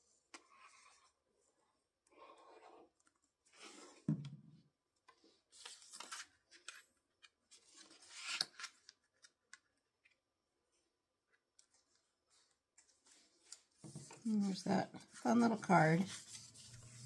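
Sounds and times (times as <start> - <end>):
paper sliding and rustling: 5.5 - 6.8, 16.0 - 17.0.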